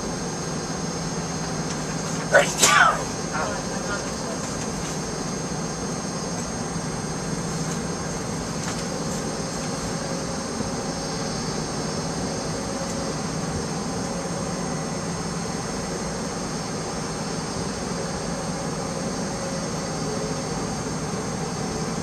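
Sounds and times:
steady high whine: 0:00.0 - 0:22.0
jet engine cabin rumble: 0:00.7 - 0:10.6.

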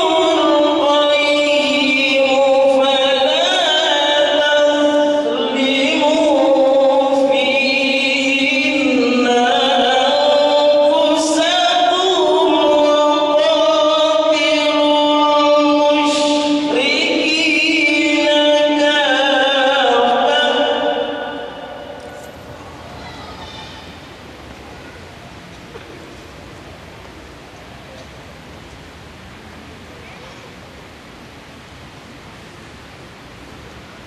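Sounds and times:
man chanting unaccompanied: 0:00.0 - 0:22.2.

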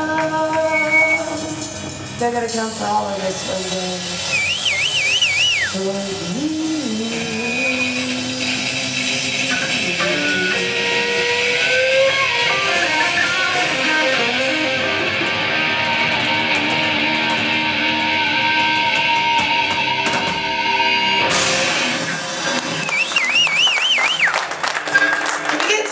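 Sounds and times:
live rock band playing: 0:00.0 - 0:24.6
electric guitar long held notes: 0:04.1 - 0:23.6.

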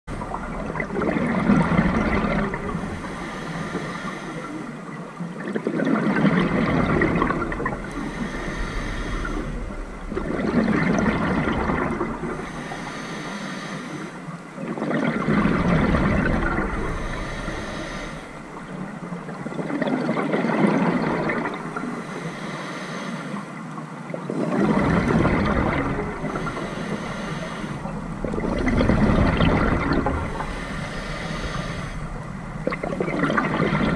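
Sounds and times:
gurgling bubbles from exhalation: 0:00.1 - 0:02.9, 0:05.4 - 0:08.4, 0:09.3 - 0:12.4, 0:14.6 - 0:17.1, 0:19.4 - 0:21.9, 0:24.2 - 0:26.8, 0:27.9 - 0:33.9
regulator hiss: 0:16.9 - 0:18.3, 0:26.2 - 0:28.0.

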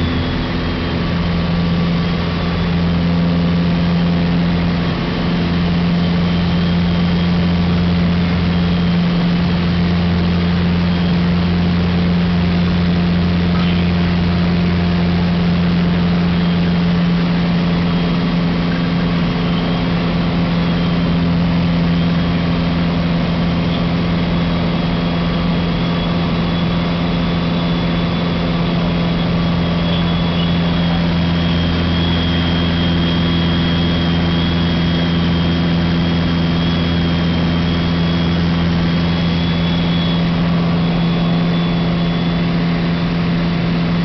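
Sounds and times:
propeller aircraft engine droning: 0:00.0 - 0:44.0
faint high whistle: 0:27.7 - 0:35.7.

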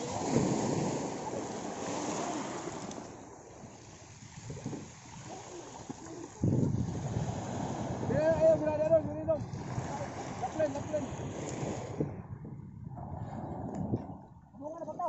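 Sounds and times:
waves washing onto pebble beach: 0:00.0 - 0:08.5
wind on microphone: 0:00.0 - 0:15.0.

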